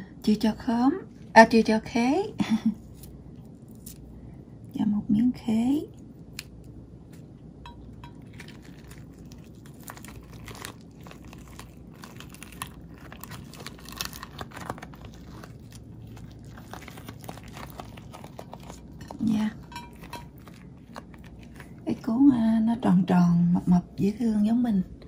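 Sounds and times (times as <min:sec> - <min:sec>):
rice paper crackling and clicking: 0:08.2 - 0:22.1.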